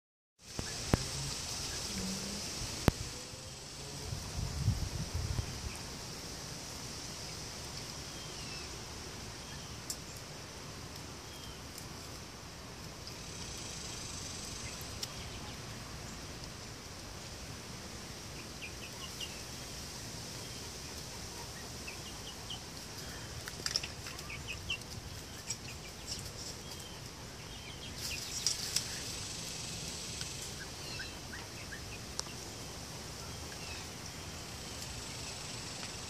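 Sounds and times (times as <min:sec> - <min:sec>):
chickens chirping: 0:13.0 - 0:16.5, 0:20.3 - 0:34.1.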